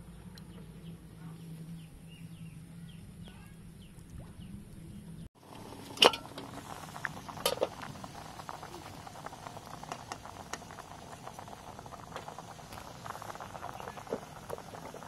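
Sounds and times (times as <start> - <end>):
water boiling in metal pot: 5.4 - 15.0
metal clank: 6.0 - 6.4.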